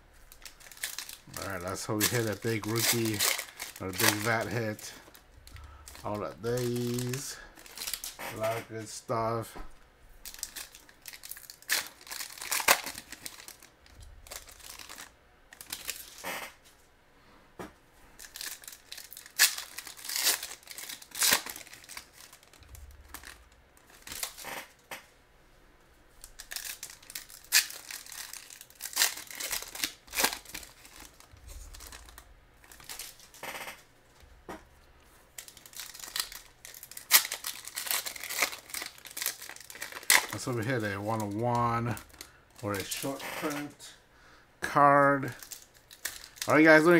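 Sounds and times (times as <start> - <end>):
foil wrappers tearing and crinkling: 0.2 - 8.7, 10.2 - 16.6, 18.2 - 24.8, 26.2 - 33.8, 35.3 - 43.8, 44.9 - 46.9.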